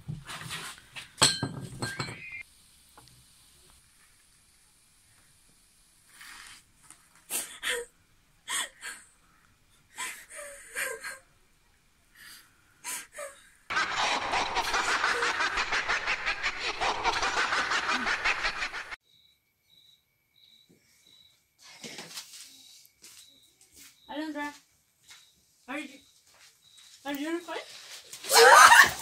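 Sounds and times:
loud rough fluttering noise: 0:13.7 - 0:19.0.

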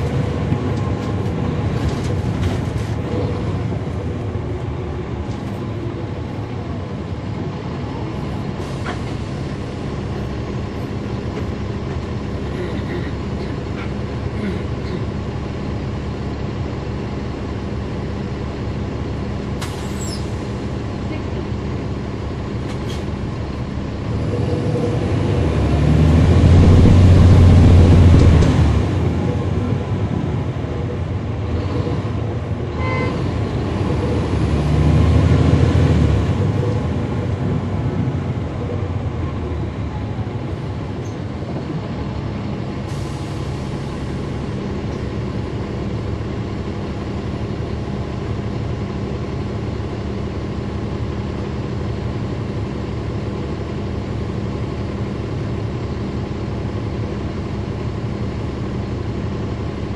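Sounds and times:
bus diesel engine droning: 0:00.0 - 0:59.9.

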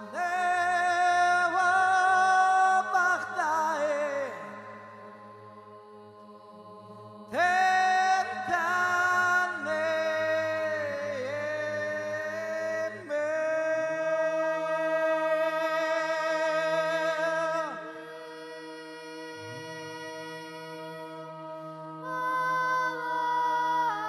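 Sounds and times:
low sustained drone: 0:00.0 - 0:15.0
solo voice singing with vibrato: 0:16.6 - 0:24.0.

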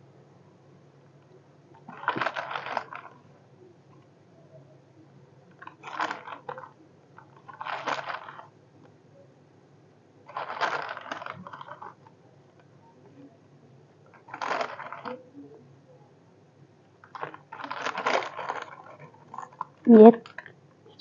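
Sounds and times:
chips crunching by hand: 0:01.9 - 0:03.2, 0:05.6 - 0:06.6, 0:07.5 - 0:08.4, 0:10.3 - 0:11.9, 0:14.2 - 0:15.1, 0:17.1 - 0:19.7.

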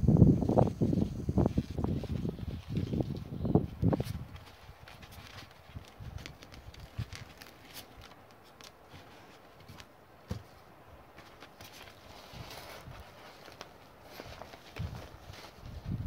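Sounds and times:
plastic foil crinkling: 0:03.9 - 0:09.8.

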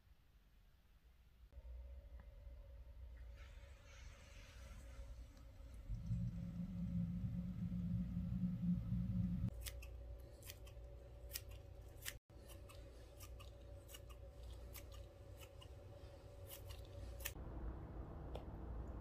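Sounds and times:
scissors snipping grass: 0:09.5 - 0:15.8, 0:16.4 - 0:17.4.

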